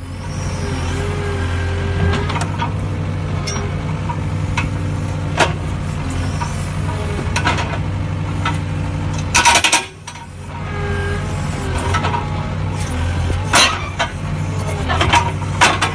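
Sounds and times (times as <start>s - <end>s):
excavator engine drone: 0.0s - 15.9s
hydraulic breaker hammering concrete: 9.2s - 15.9s.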